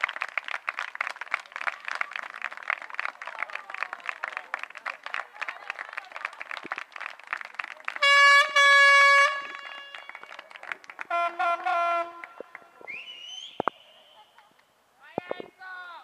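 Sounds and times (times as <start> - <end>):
horn blasts: 8.0 - 10.4, 11.0 - 12.7.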